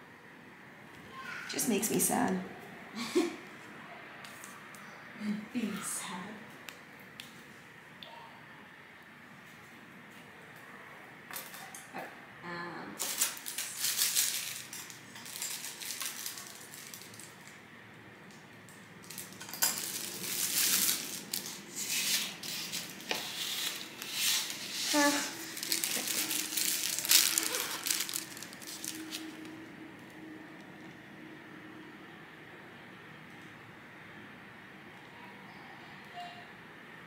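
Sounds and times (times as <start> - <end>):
utensils and dishes clattering: 13.0 - 17.3, 19.0 - 29.4.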